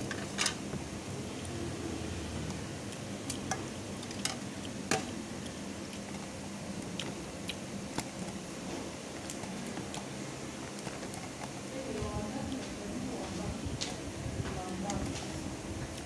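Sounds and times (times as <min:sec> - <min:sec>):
chewing noodles: 0:01.3 - 0:11.7.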